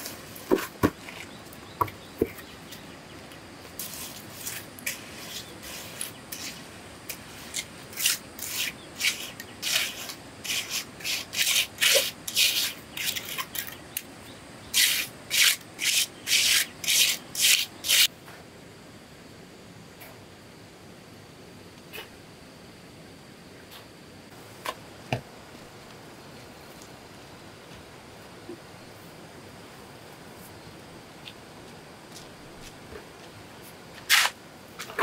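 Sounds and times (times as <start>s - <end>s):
trowel scraping mortar on stones: 3.8s - 13.9s, 14.7s - 18.1s, 34.0s - 35.0s.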